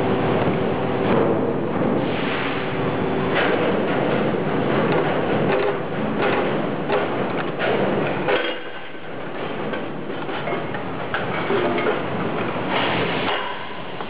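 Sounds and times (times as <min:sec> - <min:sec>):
machine knocks and clanks: 0:00.4 - 0:02.0, 0:03.2 - 0:14.0.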